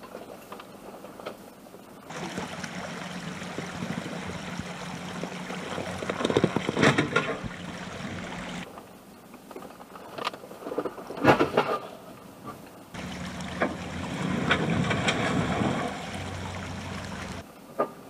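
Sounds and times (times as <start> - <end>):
engine hum: 2.1 - 8.7, 12.9 - 17.4
water splashing: 2.1 - 8.7, 13.0 - 17.4.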